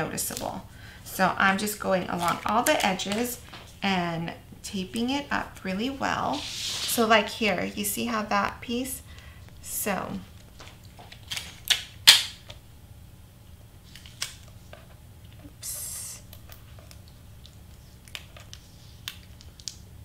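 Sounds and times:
tape and cardstock clicks: 10.6s - 12.6s.

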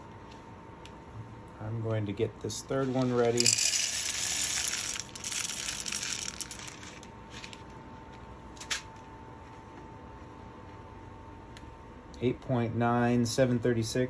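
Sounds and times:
faint steady hum: 0.0s - 14.0s
coffee beans rattling: 3.0s - 7.7s.

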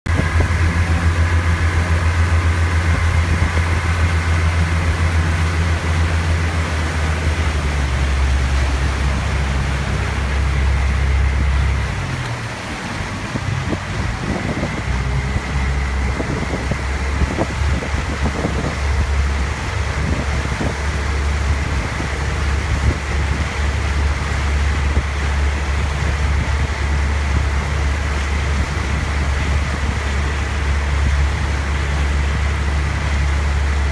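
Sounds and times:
motorboat engine drone: 0.0s - 33.9s
rushing water: 0.1s - 33.9s
rushing wind: 0.1s - 33.9s.

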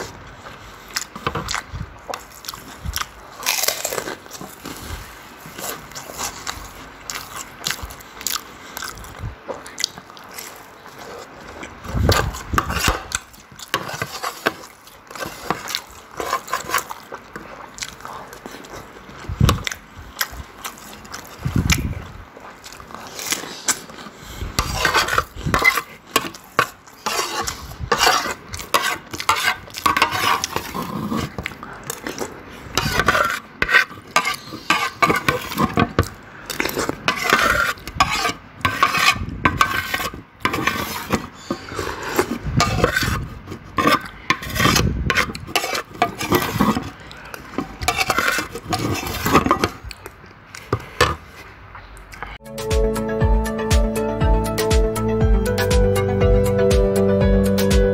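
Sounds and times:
chewing: 0.0s - 52.4s
metal spoon scraping a plate: 24.5s - 31.4s, 32.7s - 49.8s.

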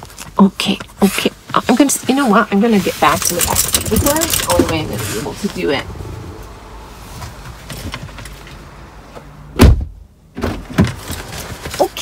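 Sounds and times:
car door slamming: 9.6s - 11.0s.

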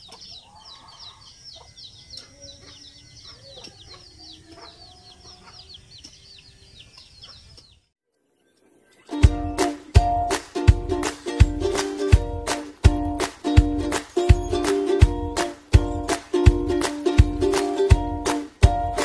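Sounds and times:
chickens clucking: 0.0s - 7.8s
high bird chirps: 0.0s - 10.4s, 13.0s - 19.0s.

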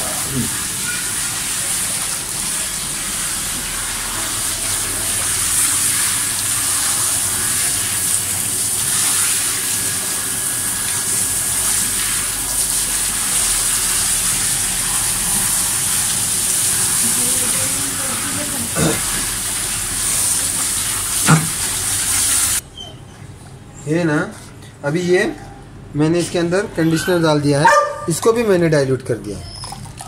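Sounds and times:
hand shower spraying water: 0.0s - 22.6s
water splashing on table: 15.4s - 22.6s.

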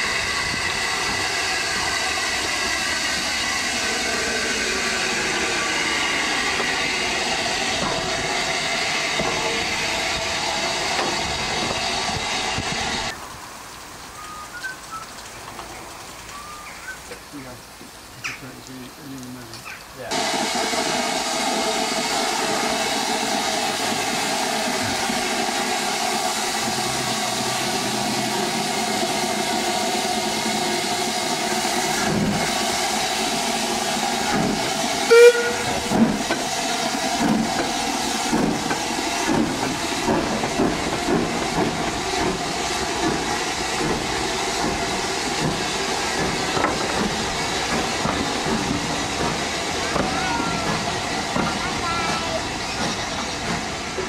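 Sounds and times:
steam locomotive hissing: 0.0s - 13.3s, 18.2s - 54.0s
train whistle: 34.8s - 35.9s.

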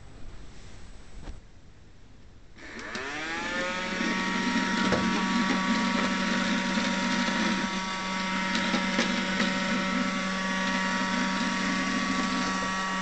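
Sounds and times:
robot vacuum motor whine: 2.6s - 13.0s.

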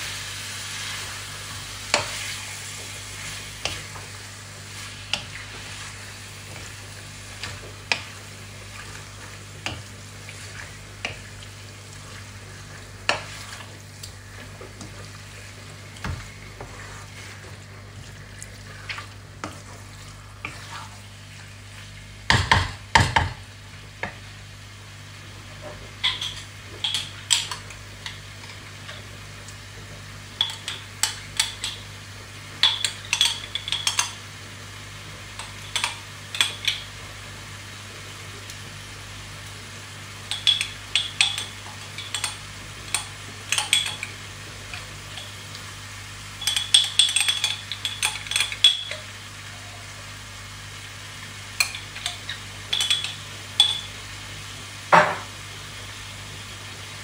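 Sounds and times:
faint frying sizzle: 0.0s - 57.0s
wooden spoon scraping wok: 0.6s - 22.1s.

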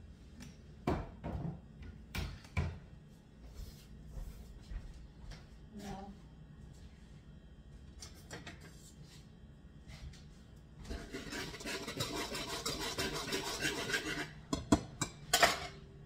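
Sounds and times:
whisk scratching in a bowl: 10.8s - 14.6s.

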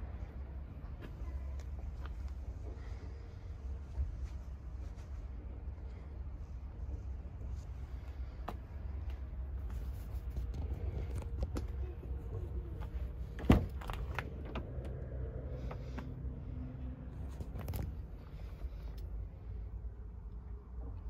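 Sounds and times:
low rumble: 0.0s - 21.0s
handling noises and light clicks: 7.5s - 16.4s, 17.1s - 19.3s.

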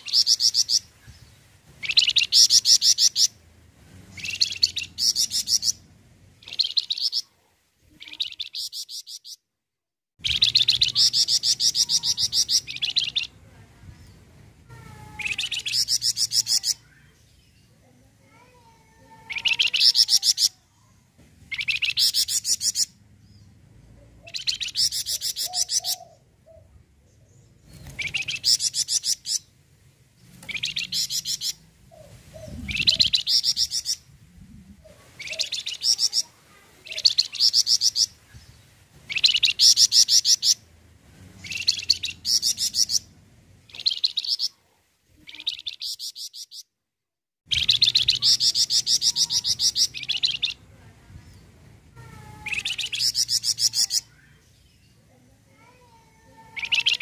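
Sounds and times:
songbird trilling: 0.0s - 0.9s, 1.8s - 3.3s, 4.1s - 5.8s, 6.4s - 7.3s, 10.2s - 13.4s, 15.0s - 17.0s, 21.5s - 22.9s, 24.2s - 26.6s, 27.8s - 29.4s, 30.4s - 34.0s, 35.2s - 38.2s, 39.1s - 40.6s, 41.4s - 43.1s, 43.7s - 44.6s, 47.5s - 50.7s, 52.2s - 54.3s, 56.4s - 57.0s.

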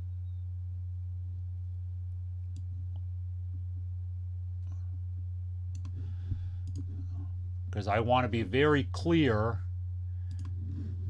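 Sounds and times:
low electrical hum: 0.0s - 11.0s
computer mouse clicks: 5.7s - 7.2s, 10.2s - 11.0s.

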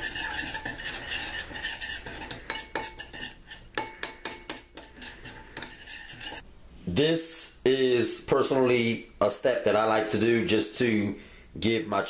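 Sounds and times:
spoon scraping dry powder: 0.0s - 6.4s.

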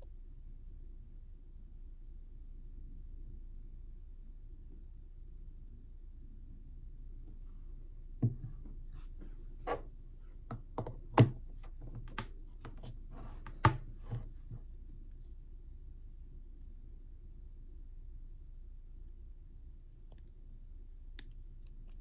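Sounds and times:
plastic clicks and knocks: 10.5s - 12.8s.

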